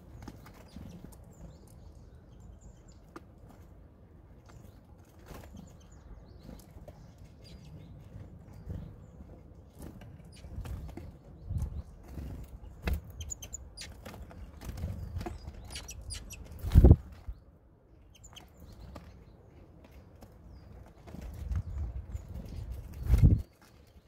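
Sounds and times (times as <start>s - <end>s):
faint high bird calls: 13.0s - 14.4s, 15.2s - 16.6s, 18.1s - 19.1s
bird wing flutters: 22.9s - 23.5s.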